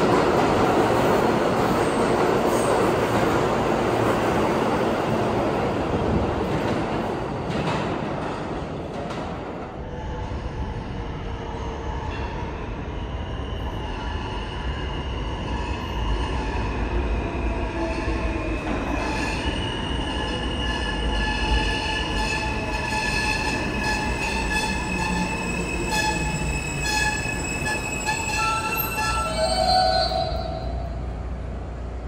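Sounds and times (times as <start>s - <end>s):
low rumble of train cars: 0.0s - 32.0s
train wheels squealing: 9.8s - 31.0s.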